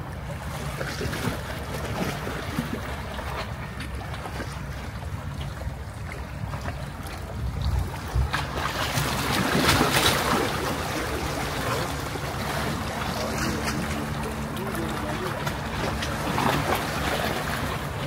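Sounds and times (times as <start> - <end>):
boat engine rumbling: 0.0 - 18.0
water rushing along hull: 0.0 - 18.0
wind on microphone: 6.7 - 18.0.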